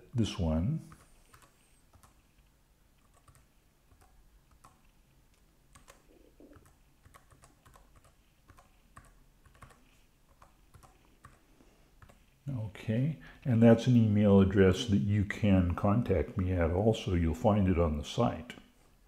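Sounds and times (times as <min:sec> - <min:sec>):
faint keyboard typing: 0:00.8 - 0:12.4.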